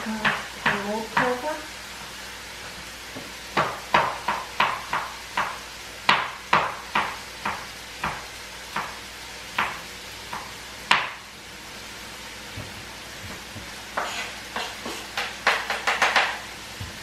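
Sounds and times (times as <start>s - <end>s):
knife chopping on wooden board: 3.2s - 9.0s, 9.6s - 11.2s, 13.6s - 16.4s.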